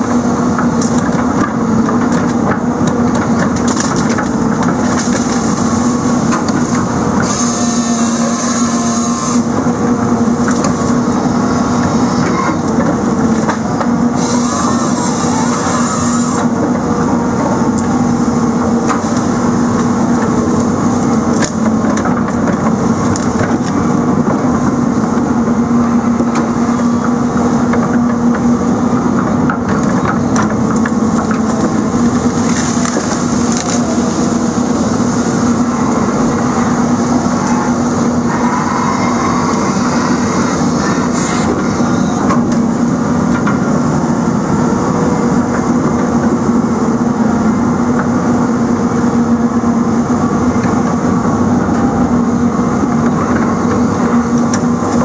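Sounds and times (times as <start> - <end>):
heavy machine engine and hydraulics: 0.0 - 55.0
chain saw cutting logs: 14.2 - 16.5.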